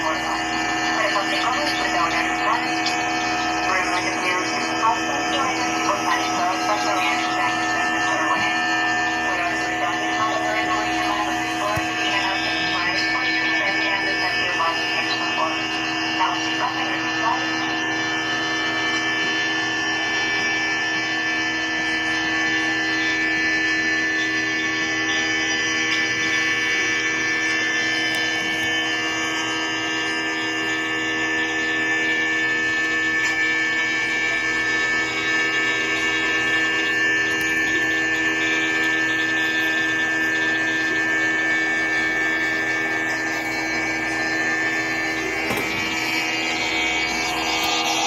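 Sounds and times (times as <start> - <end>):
small electric motor whining: 0.0 - 48.0.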